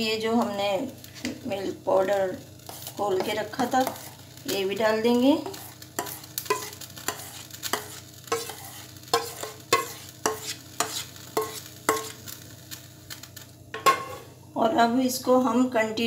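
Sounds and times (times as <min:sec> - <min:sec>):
spatula scraping steel bowl: 0:02.7 - 0:04.2, 0:05.4 - 0:12.2.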